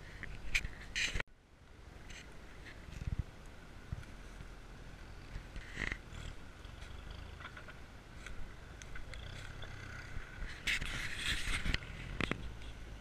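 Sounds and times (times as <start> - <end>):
off-road vehicle engine rumble: 0.0 - 13.0
rustling scrape: 10.3 - 12.8.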